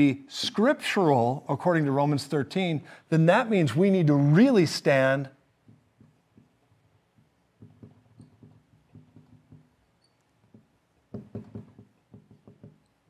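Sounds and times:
marker squeaking on whiteboard: 5.6 - 13.0.

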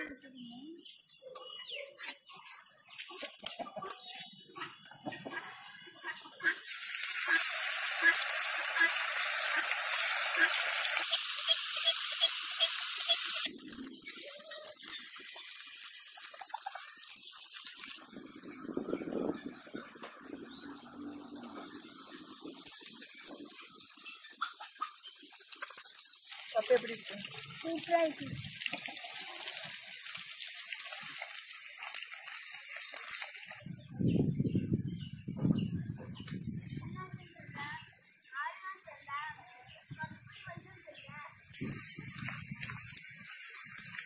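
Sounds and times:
fish sizzling in hot oil: 6.6 - 18.5, 22.5 - 33.6, 41.6 - 44.0.

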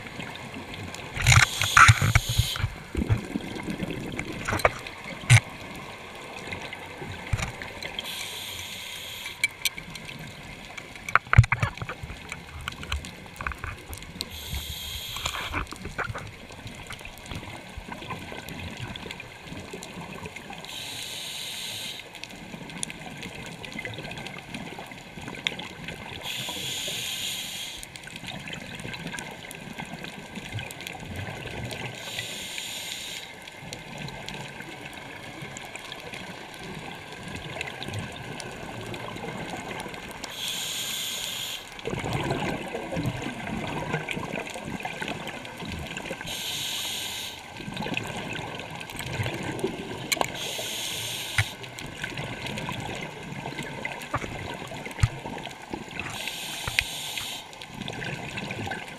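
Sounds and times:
exhaled air bubbling: 0.0 - 20.9, 33.5 - 58.9
scuba regulator inhalation hiss: 1.3 - 2.8, 8.0 - 9.4, 14.3 - 15.7, 20.7 - 22.1, 26.2 - 27.9, 32.0 - 33.3, 40.3 - 41.8, 46.2 - 47.5, 50.3 - 51.7, 56.0 - 57.6.

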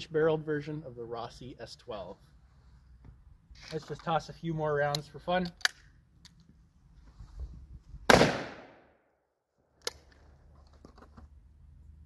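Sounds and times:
shotgun shot: 8.1 - 8.9.

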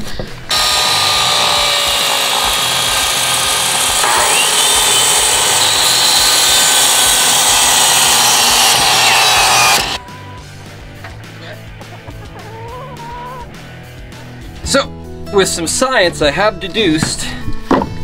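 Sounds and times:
miter saw motor whine: 0.5 - 10.0
saw blade cutting wood: 0.5 - 10.0.

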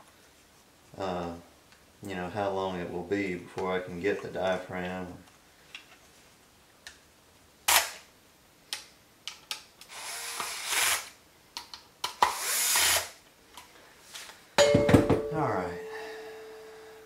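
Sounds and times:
cordless drill driving screws: 9.9 - 11.1, 12.3 - 13.1.

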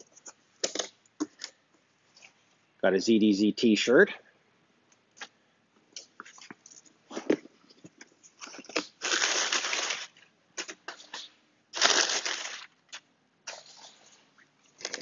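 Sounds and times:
packing paper rustling: 8.2 - 12.8, 14.8 - 15.0.

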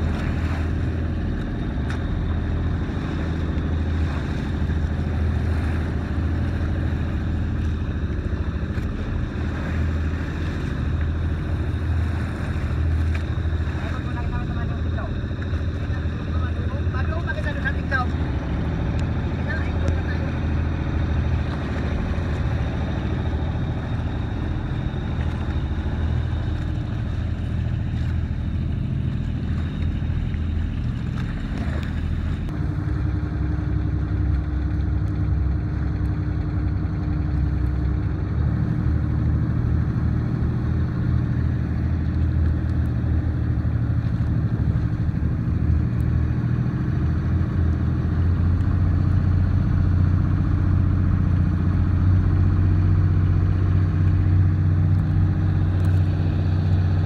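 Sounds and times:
boat engine droning: 0.0 - 57.0
rushing water: 0.0 - 57.0
wind: 0.0 - 57.0.

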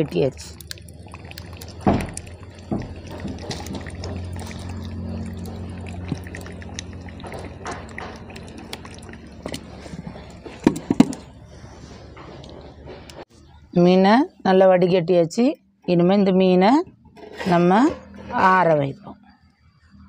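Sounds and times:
water trickling into a steel pot: 0.0 - 11.4.

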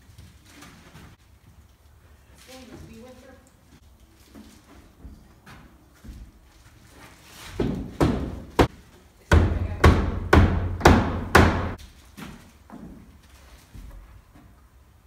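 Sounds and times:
knocks on wooden door frame: 9.3 - 11.8.

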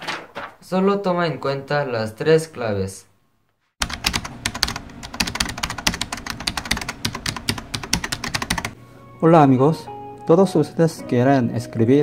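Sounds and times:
fast keyboard typing: 3.8 - 8.8.

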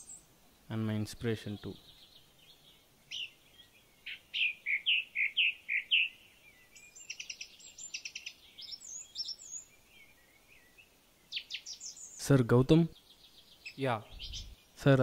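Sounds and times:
bird chattering: 4.0 - 6.2, 7.0 - 9.6, 11.3 - 12.4, 13.0 - 14.8
bird whistling: 4.1 - 6.2.

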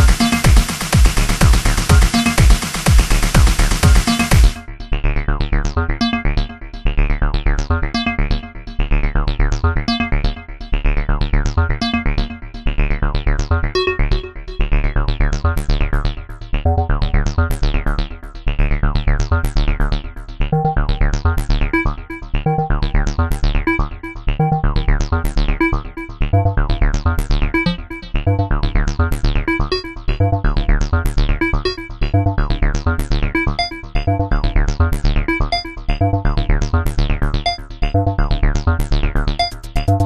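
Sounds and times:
heavy synth bass line: 0.0 - 40.0.

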